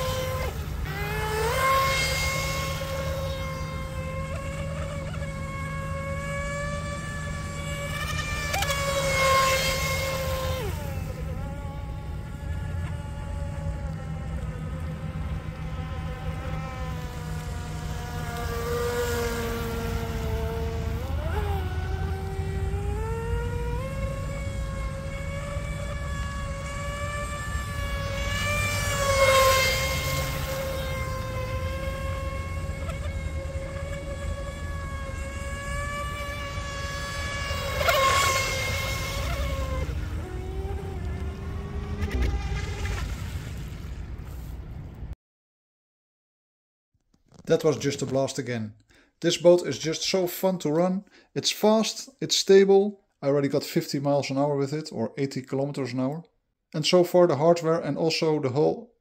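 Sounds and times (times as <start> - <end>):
electric motor whining: 0.0 - 43.9.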